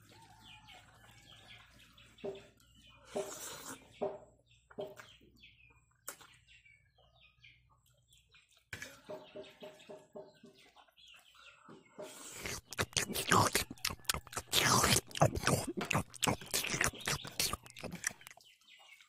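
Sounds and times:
chicken clucking: 0.0 - 19.0
small birds chirping: 0.0 - 19.0
slurping spaghetti: 3.1 - 4.0, 12.0 - 18.4.

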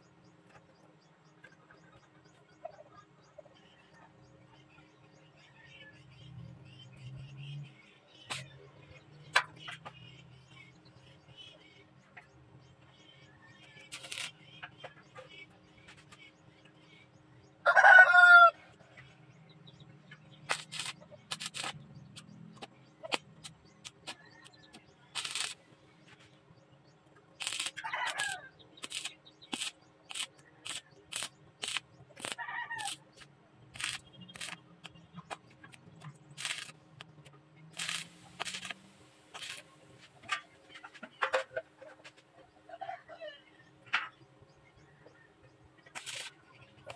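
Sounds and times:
welding arc crackling: 13.9 - 14.4, 20.5 - 21.8, 22.6 - 24.5, 25.2 - 25.6, 27.4 - 33.0, 33.7 - 35.0, 36.3 - 36.8, 37.8 - 39.7, 46.0 - 46.9
rooster crowing: 17.6 - 18.6.

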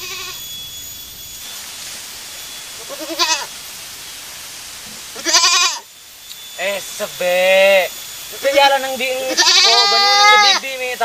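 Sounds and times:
goat bleating: 0.0 - 0.4, 2.8 - 3.5, 5.2 - 5.9, 9.1 - 10.6.

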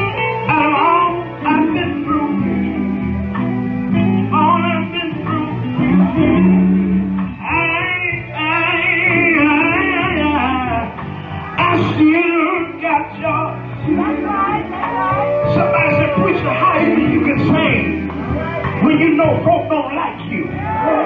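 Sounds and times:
person singing wordless lines: 0.0 - 11.0, 11.6 - 20.3
live gospel band music: 0.0 - 21.0.

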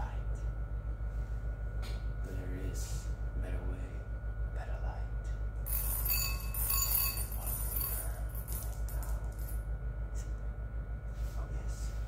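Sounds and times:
low pulsing hum: 0.0 - 12.0
bright metallic jingle: 5.7 - 9.6.

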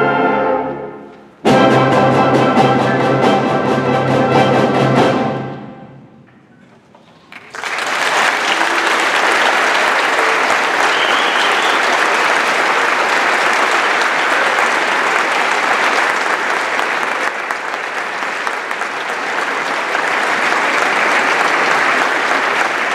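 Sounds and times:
audience applause: 7.0 - 22.9.

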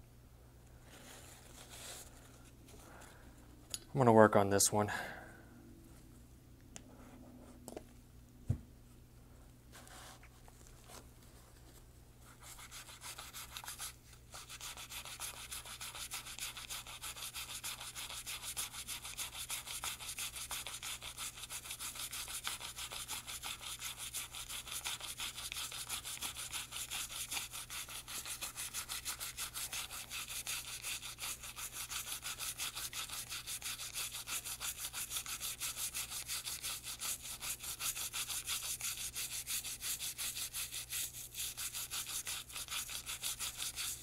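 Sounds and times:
toothbrush scrubbing metal: 12.4 - 44.0.

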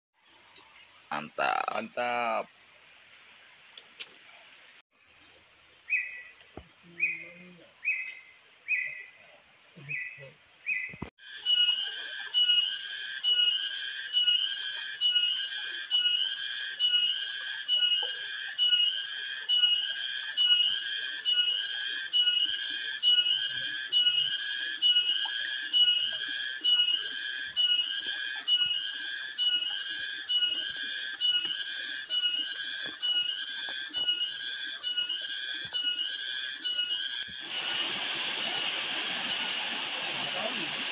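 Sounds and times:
rhythmic animal call: 11.4 - 37.5.

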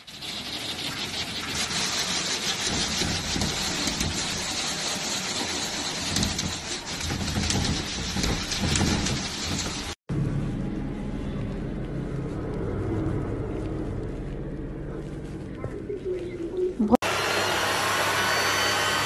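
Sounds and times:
water jet spraying against glass: 0.0 - 10.0.

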